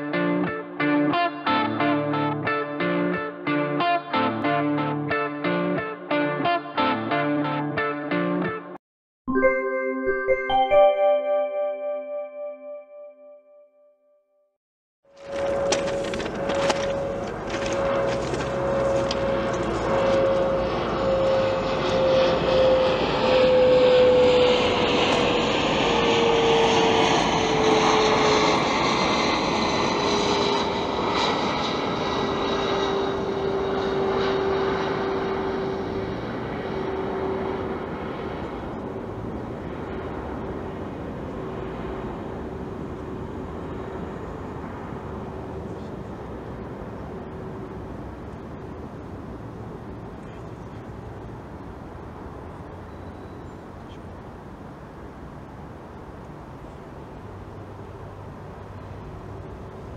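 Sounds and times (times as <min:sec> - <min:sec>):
passing vehicle rushing with whine: 0:15.3 - 0:59.9.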